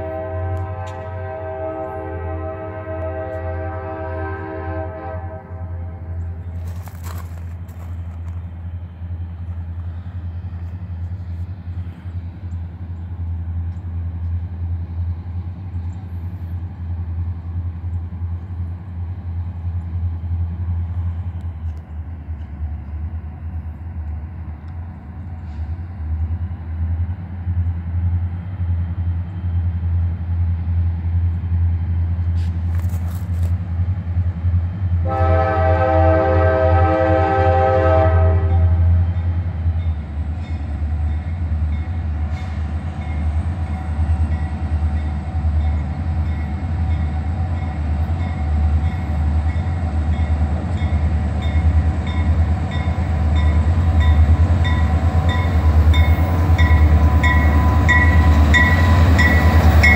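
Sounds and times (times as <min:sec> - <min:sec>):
locomotive horn chord: 0:00.0 - 0:06.5, 0:35.0 - 0:39.3
diesel locomotives rumbling: 0:00.0 - 0:59.9.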